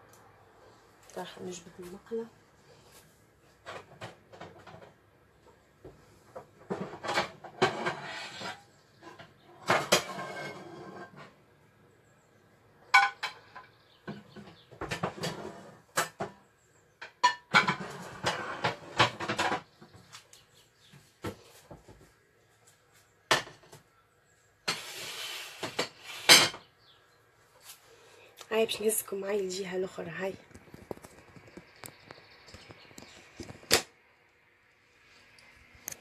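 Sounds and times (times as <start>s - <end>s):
pots and pans clanking: 6.7s - 11.2s, 17.0s - 19.7s.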